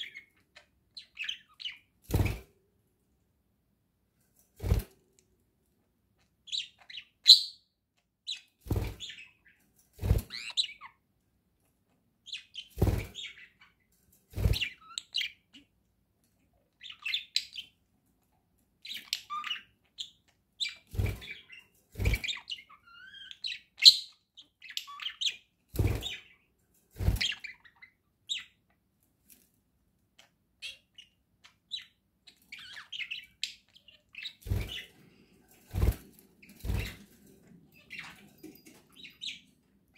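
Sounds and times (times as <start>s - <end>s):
budgerigars chirping and warbling: 0.0s - 2.4s, 6.5s - 7.6s, 8.3s - 11.0s, 12.3s - 13.8s, 16.8s - 17.8s, 18.8s - 28.6s, 30.6s - 39.9s.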